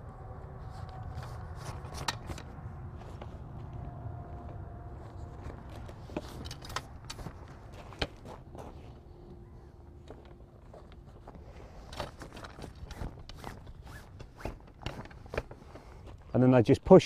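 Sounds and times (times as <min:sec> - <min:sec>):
low steady rumble: 0:00.0 - 0:12.6.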